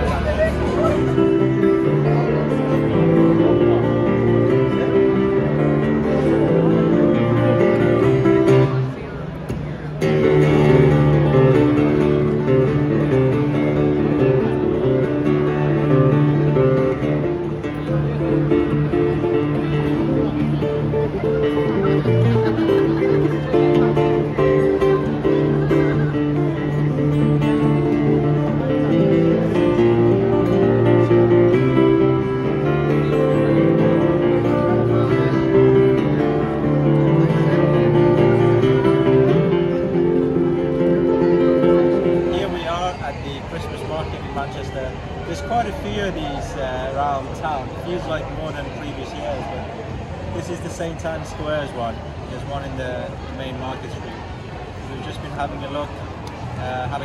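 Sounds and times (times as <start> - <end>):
acoustic guitar strummed chords: 0.0 - 43.1.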